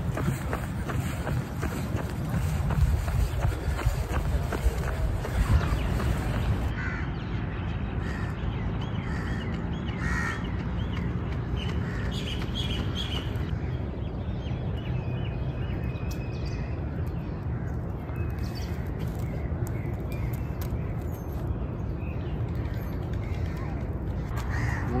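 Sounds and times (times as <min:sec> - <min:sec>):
crows cawing: 0:06.7 - 0:07.1, 0:10.0 - 0:10.4, 0:24.4 - 0:25.0.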